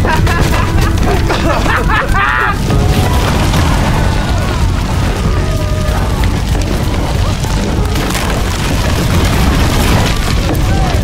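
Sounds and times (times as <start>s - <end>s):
deep rumble of flames: 0.0s - 11.0s
fire crackling: 0.0s - 11.0s.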